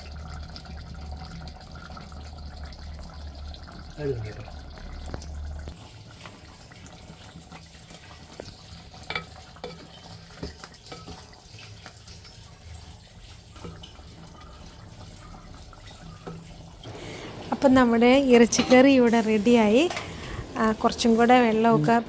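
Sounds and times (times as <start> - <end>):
curry bubbling: 0.0 - 22.0
wooden spatula stirring curry: 7.9 - 16.8.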